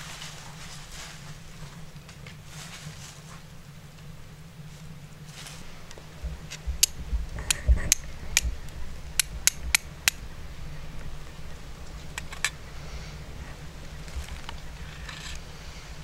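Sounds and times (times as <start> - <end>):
flint striking fire steel: 6.5 - 10.2.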